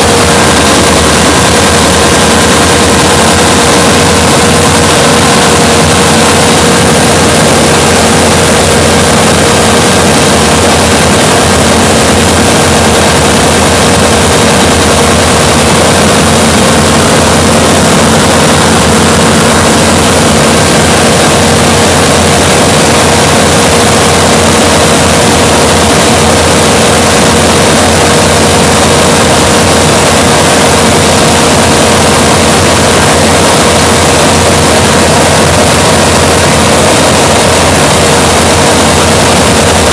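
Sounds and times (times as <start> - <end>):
aircraft engine and propeller drone: 0.0 - 39.9
rush of air noise: 0.0 - 39.9
steady hum: 0.0 - 39.9.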